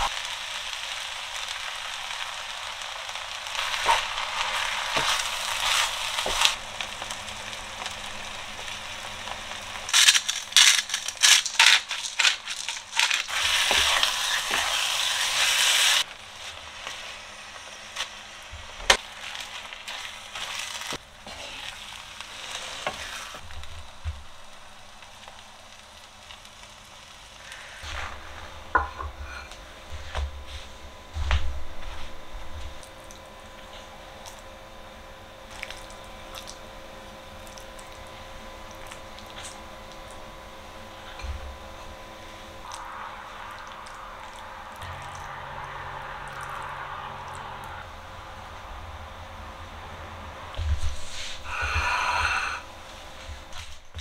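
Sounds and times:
food sizzling in a frying pan: 0.0s - 54.0s
wooden spoon scraping a pan: 19.9s - 23.4s.

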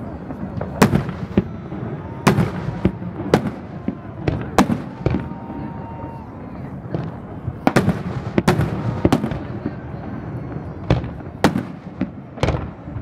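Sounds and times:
fireworks bursting with echo: 0.0s - 13.0s.

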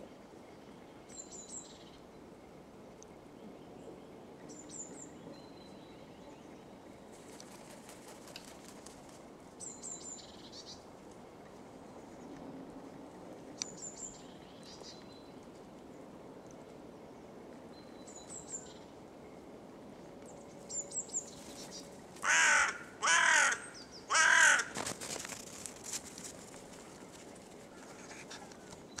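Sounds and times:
crow cawing: 22.2s - 24.9s.

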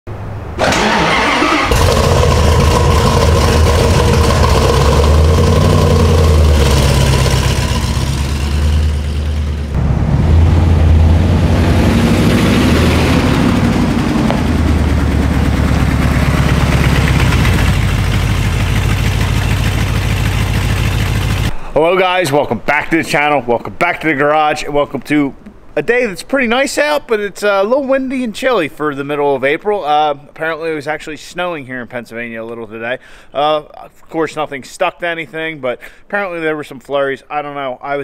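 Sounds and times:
truck engine starting and revving: 0.5s - 21.5s.

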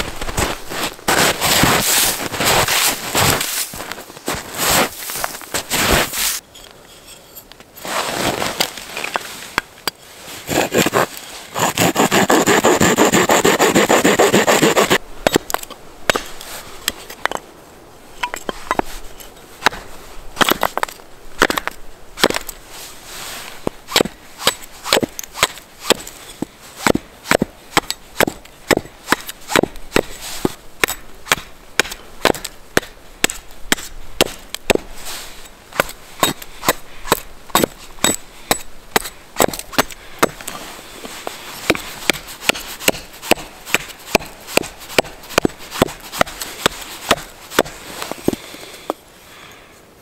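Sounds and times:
hatchet chopping wooden board: 11.6s - 16.3s, 21.4s - 22.5s, 23.9s - 26.0s, 26.8s - 30.1s, 30.8s - 34.9s, 35.8s - 40.4s, 41.7s - 47.8s.

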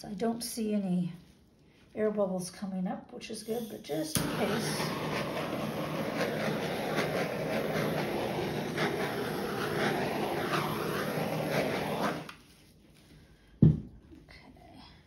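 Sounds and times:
torch flame hissing: 3.5s - 12.4s.

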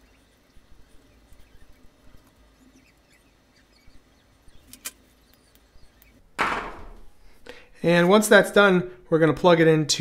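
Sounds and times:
small clicks and scratching: 4.6s - 6.2s.

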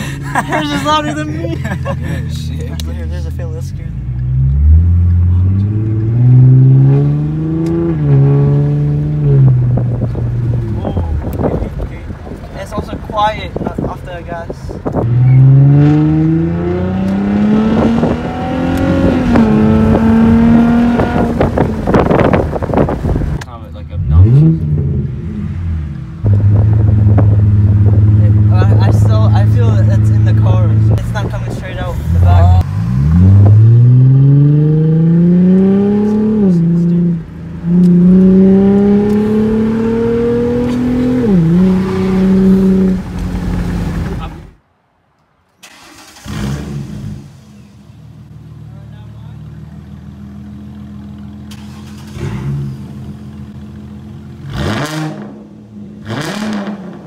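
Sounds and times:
car exhaust accelerating: 0.0s - 13.1s, 14.7s - 44.6s.

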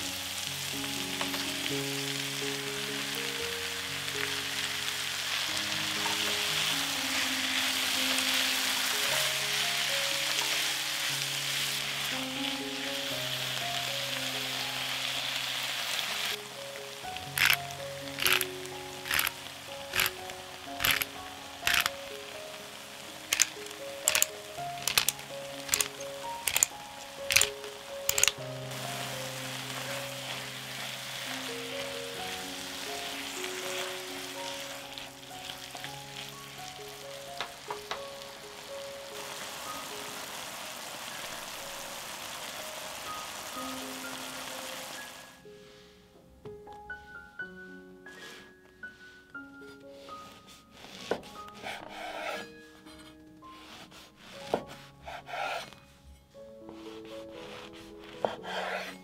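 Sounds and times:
food sizzling in a pan: 0.0s - 45.9s
soft background music: 0.0s - 59.0s.

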